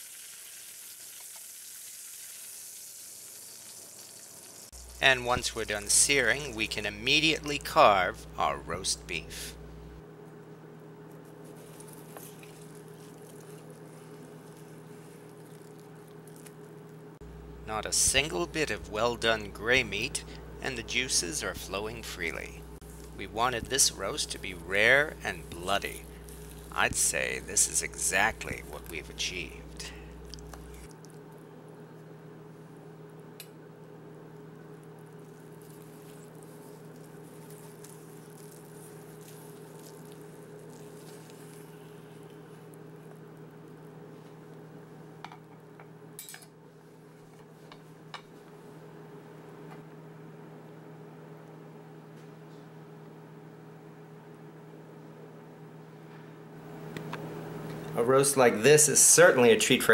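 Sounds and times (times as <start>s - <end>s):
low electrical hum: 0.0s - 59.9s
wet squishing and scraping: 11.2s - 16.8s, 25.3s - 29.1s, 30.2s - 31.2s, 35.2s - 42.6s.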